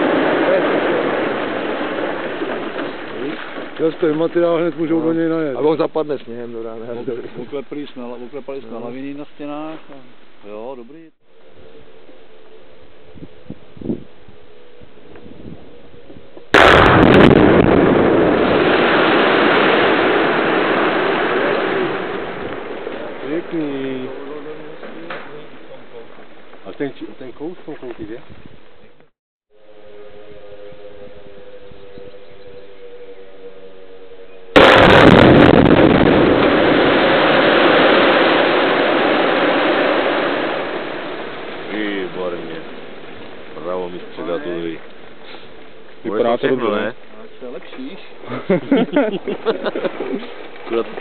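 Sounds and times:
explosive blast bang: 0:00.0 - 0:04.4, 0:16.5 - 0:25.4, 0:34.6 - 0:44.6
rock collapsing rumble: 0:00.0 - 0:06.2, 0:16.5 - 0:26.6, 0:34.6 - 0:46.8, 0:48.6 - 0:51.0.

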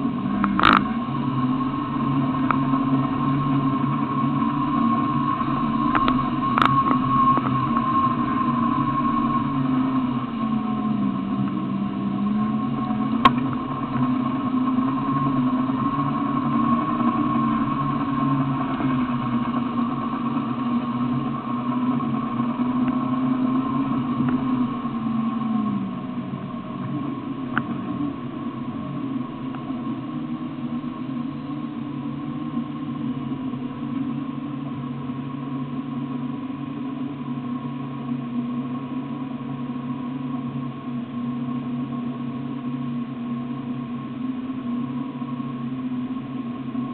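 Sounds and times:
engine revving and idling: 0:00.0 - 0:34.4.

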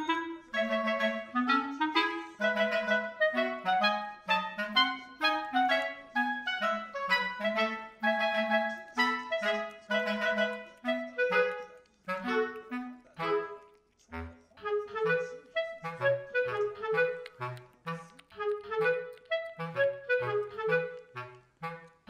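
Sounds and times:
light tune of detached notes: 0:00.0 - 0:22.0.

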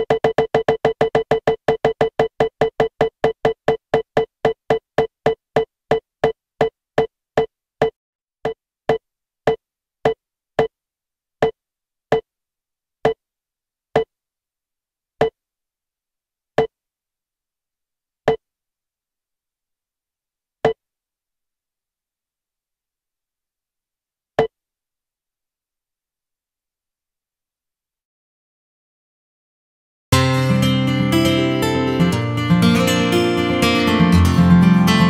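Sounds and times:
electronic roulette wheel ticks: 0:00.0 - 0:06.4.

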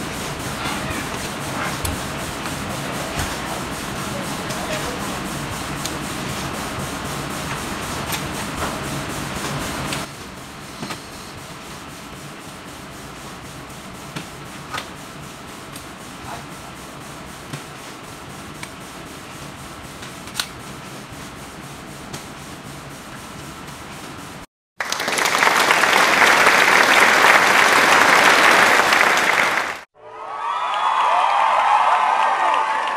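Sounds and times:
rough rubbing noise: 0:00.0 - 0:10.1.

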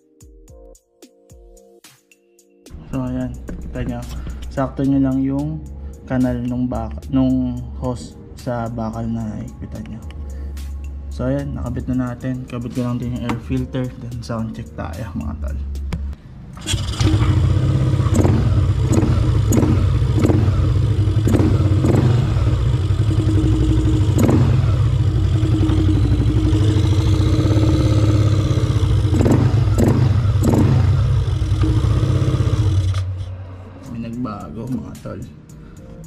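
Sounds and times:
scooter engine idling: 0:16.6 - 0:33.3.

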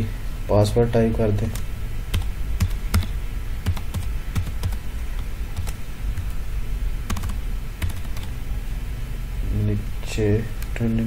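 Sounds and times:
steady low hum: 0:00.0 - 0:11.0
computer keyboard keystrokes: 0:02.2 - 0:03.1, 0:05.6 - 0:06.3, 0:07.1 - 0:08.3.

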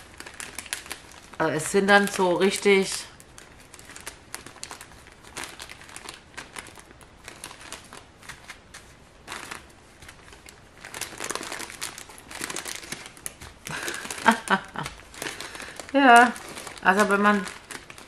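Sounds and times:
plastic bags crinkling: 0:00.0 - 0:18.0.

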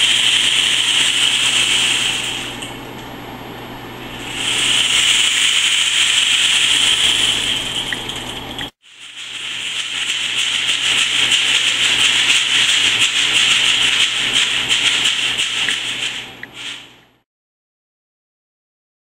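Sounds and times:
rain stick trickling: 0:04.2 - 0:16.9.

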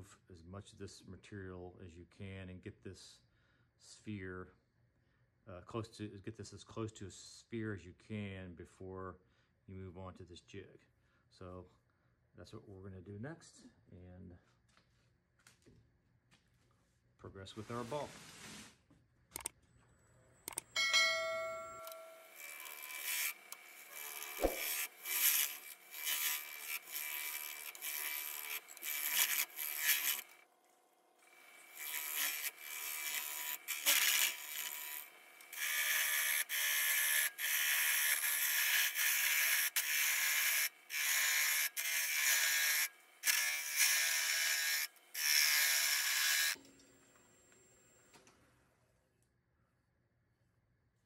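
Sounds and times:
lathe tool scraping resin: 0:21.7 - 0:46.6.

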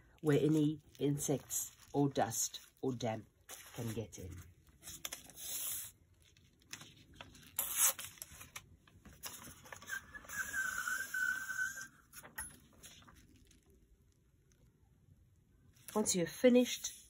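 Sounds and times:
rustling and scraping packing materials: 0:00.3 - 0:13.6
rasping drag with whistle-like tone: 0:09.8 - 0:12.1.

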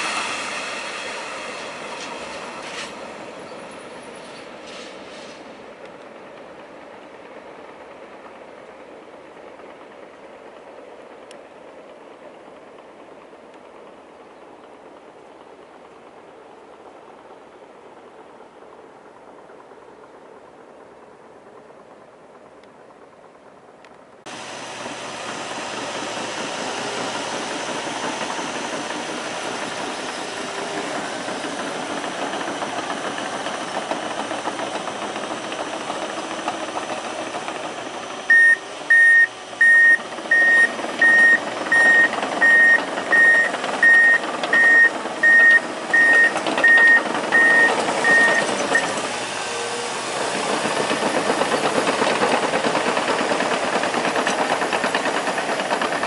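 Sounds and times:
bulldozer diesel engine running: 0:00.0 - 0:56.0
reversing alarm beeping: 0:38.3 - 0:49.0.

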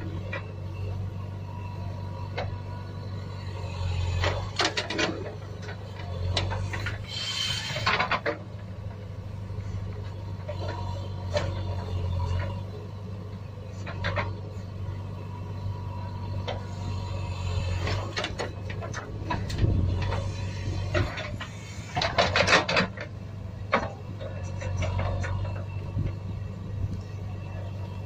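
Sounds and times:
rattle of clicks on toy truck: 0:04.2 - 0:08.4.

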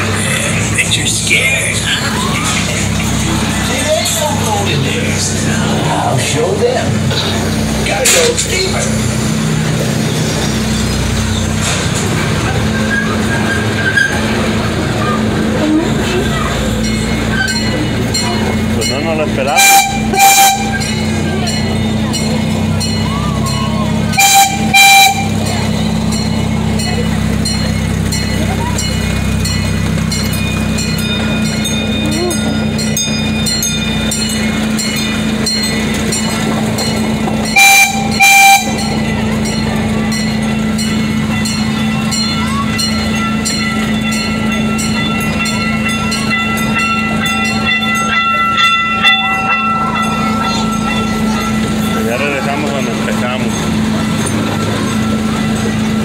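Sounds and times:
miniature train rumble: 0:00.0 - 0:56.0
train horn toots: 0:19.5 - 0:21.0, 0:24.1 - 0:25.7, 0:37.5 - 0:39.1.

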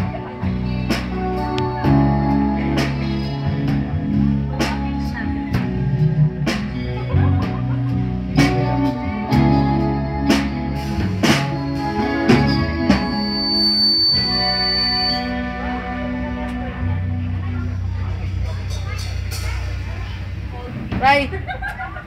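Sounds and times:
live rock band playing: 0:00.0 - 0:21.5.

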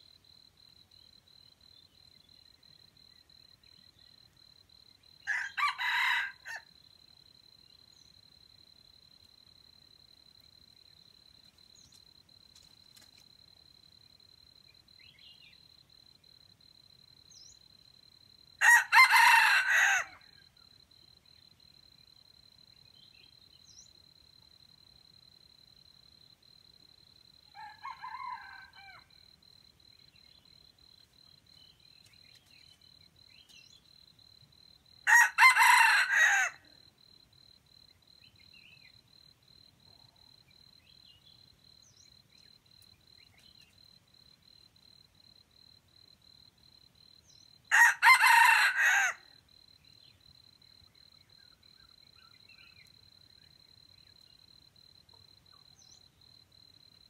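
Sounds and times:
rooster crowing: 0:05.2 - 0:06.7, 0:18.6 - 0:20.3, 0:27.5 - 0:29.1, 0:35.0 - 0:36.7, 0:47.7 - 0:49.3.

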